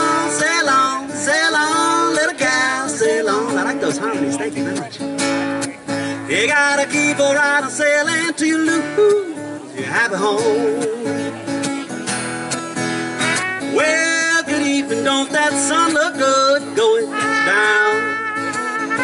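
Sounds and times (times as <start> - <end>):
man singing: 0.0 - 5.0, 6.1 - 11.4, 13.2 - 19.0
acoustic guitar strumming: 0.0 - 19.0
trumpet playing: 13.2 - 14.3, 17.1 - 19.0.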